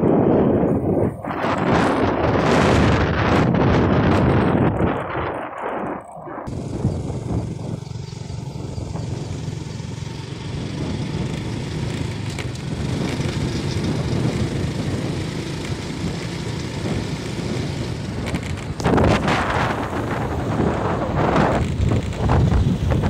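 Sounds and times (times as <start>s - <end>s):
wind rushing over microphone: 0.0s - 23.0s
motorcycle engine running: 6.5s - 23.0s.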